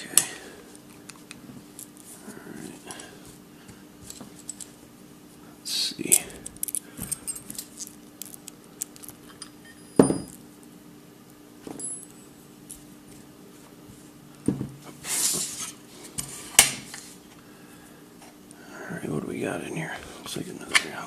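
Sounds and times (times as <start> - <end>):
metal parts clicking and clinking: 4.1 - 4.7, 6.1 - 10.4.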